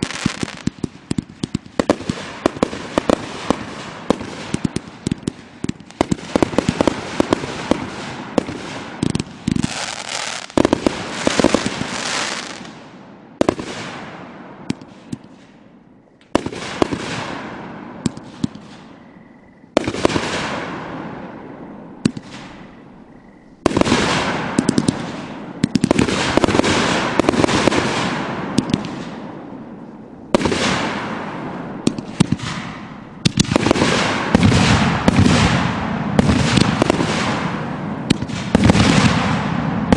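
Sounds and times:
fireworks bursting and crackling: 0.0s - 23.0s, 23.6s - 39.9s.

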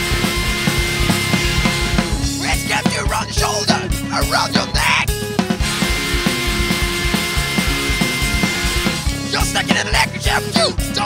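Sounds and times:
hardcore punk band playing: 0.0s - 11.0s
person singing or shouting: 2.3s - 5.2s, 9.3s - 11.0s.

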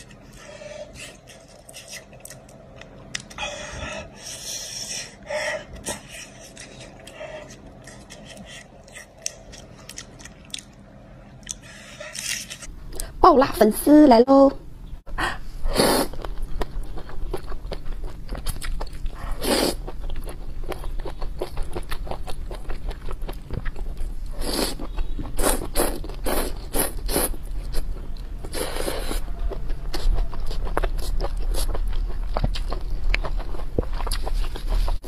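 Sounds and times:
wet chewing and lip-smacking: 0.0s - 10.8s, 11.4s - 13.1s, 16.1s - 35.0s
person slurping noodles: 15.7s - 16.2s, 19.4s - 19.8s.

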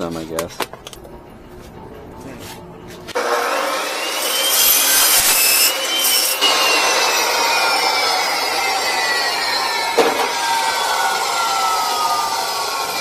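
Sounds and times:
saw blade grinding through steel: 3.2s - 13.0s.

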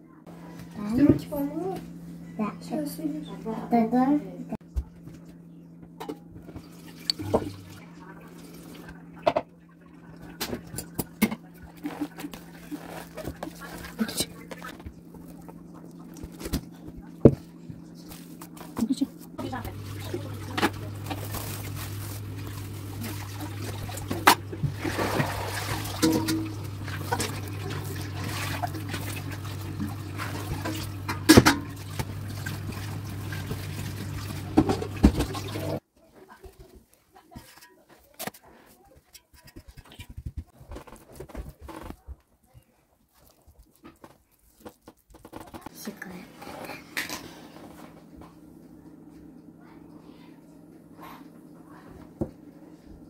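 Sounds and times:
steady low hum: 0.0s - 35.8s
hands handling sticky dough: 11.6s - 24.4s, 36.2s - 45.7s.

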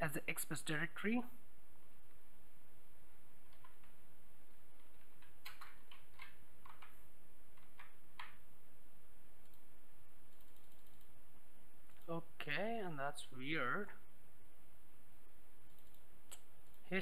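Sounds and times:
background hiss: 0.0s - 17.0s
keyboard key clicks: 5.2s - 6.9s.

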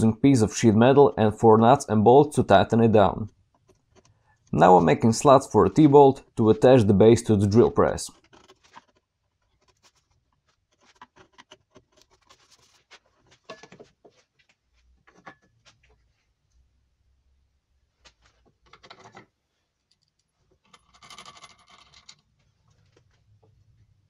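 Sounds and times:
metal tools clicking on plywood: 8.2s - 14.0s, 18.5s - 22.3s.

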